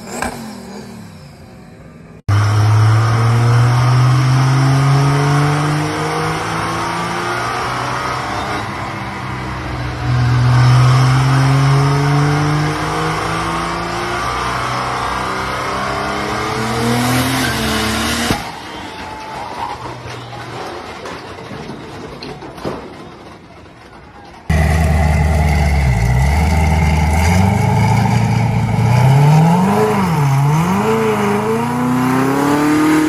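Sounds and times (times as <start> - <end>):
diesel engine at full throttle: 0.0 - 18.5, 24.5 - 33.0
engine bang: 24.5 - 29.7.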